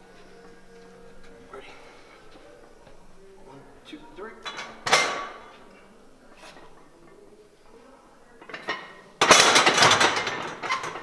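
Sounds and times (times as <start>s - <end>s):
plates and bar rattling: 4.4s - 5.5s, 8.4s - 11.0s
barbell clanking on rack: 4.5s - 5.4s, 8.5s - 11.0s.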